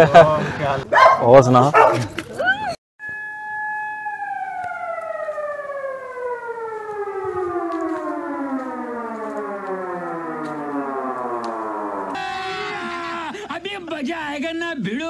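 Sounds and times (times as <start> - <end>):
motor-driven siren winding down: 3.0 - 12.9.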